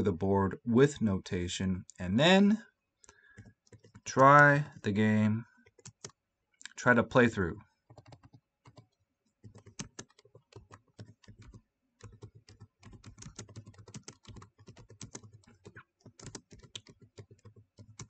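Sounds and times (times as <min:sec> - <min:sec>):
typing on computer keyboard: 0:03.3 - 0:04.1, 0:05.6 - 0:06.2, 0:07.9 - 0:18.0.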